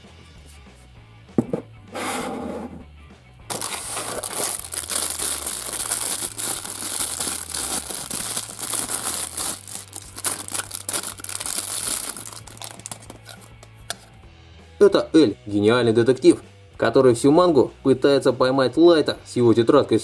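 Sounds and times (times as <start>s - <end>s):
ceramic mug knocking on table: 1.4s - 1.7s
plastic wrapping crinkling: 3.5s - 13.5s.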